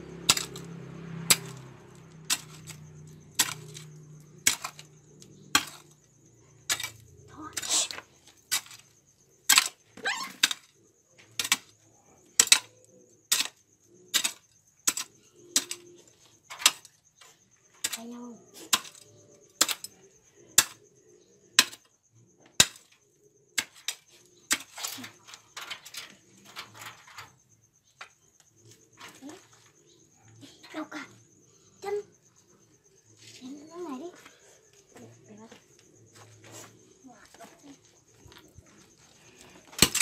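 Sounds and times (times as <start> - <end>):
metal hoe chopping into dirt: 0.3 - 0.7, 1.3 - 1.6, 2.3 - 4.8, 5.5 - 5.9, 6.7 - 8.9, 9.5 - 10.6, 11.3 - 11.7, 12.4 - 12.7, 13.3 - 15.9, 16.5 - 16.9, 18.7 - 19.0, 21.6 - 21.8, 22.6 - 22.9, 23.6 - 25.7, 39.7 - 40.0.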